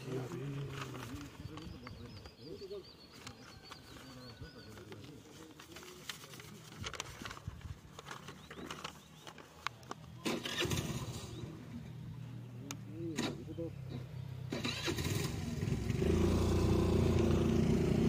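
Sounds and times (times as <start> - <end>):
paper rustling and crinkling: 0.0 - 2.4, 3.1 - 10.2
vehicle engine starting and running: 10.2 - 11.9, 12.6 - 18.0.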